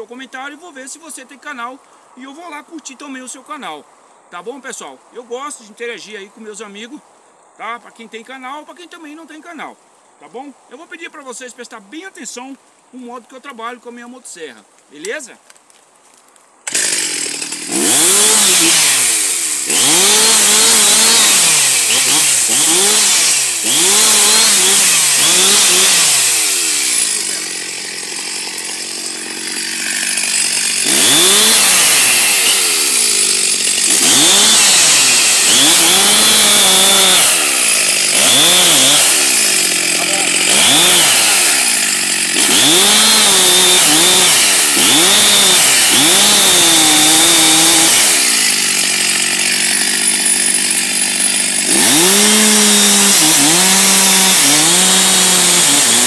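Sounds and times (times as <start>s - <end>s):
chainsaw revving and cutting wood: 16.7s - 56.0s.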